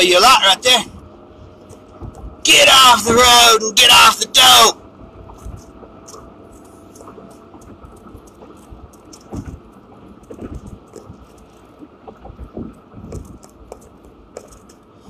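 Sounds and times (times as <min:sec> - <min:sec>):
car road rumble: 0:00.0 - 0:15.0
soft knocks: 0:01.7 - 0:02.4
light clicks and rattles: 0:05.3 - 0:14.9.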